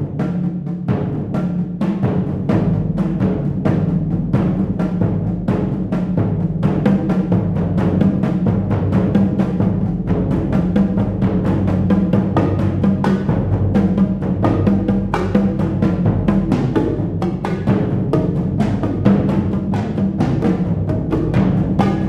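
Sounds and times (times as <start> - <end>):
drums being struck: 0.0 - 22.0
low ring of bass drums: 0.0 - 22.0.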